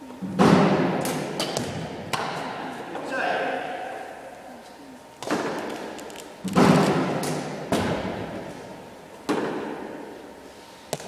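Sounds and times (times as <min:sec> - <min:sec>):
dull thumps echoing in hall: 0:00.0 - 0:04.0, 0:05.2 - 0:10.3.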